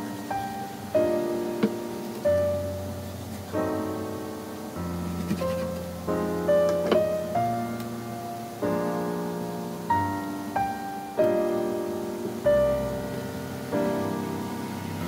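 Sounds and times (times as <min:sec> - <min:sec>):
gentle piano piece: 0:00.0 - 0:15.0.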